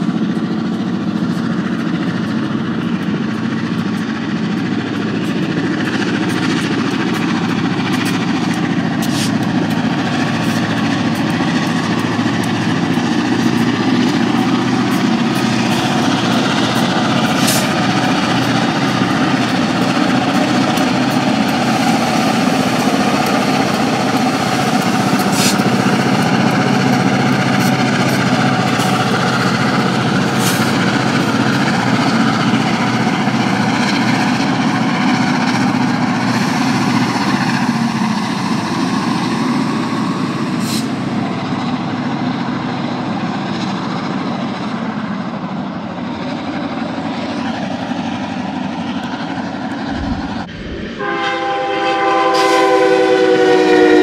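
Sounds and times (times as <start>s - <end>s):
freight train rumbling past: 0.0s - 54.0s
locomotive air horn: 51.0s - 54.0s.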